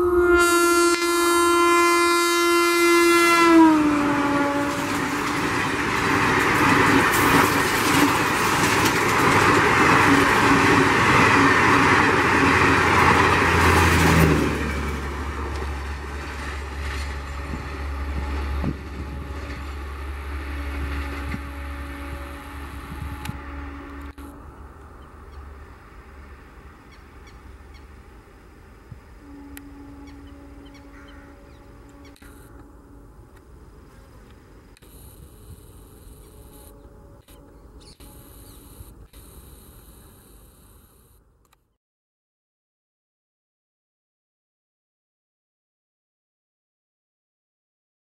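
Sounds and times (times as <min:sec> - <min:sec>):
train horn blaring: 0:00.0 - 0:07.6, 0:09.9 - 0:25.6, 0:29.1 - 0:34.2, 0:34.8 - 0:41.1
rush of wind from train: 0:00.0 - 0:41.1
rumble of train: 0:00.0 - 0:41.5.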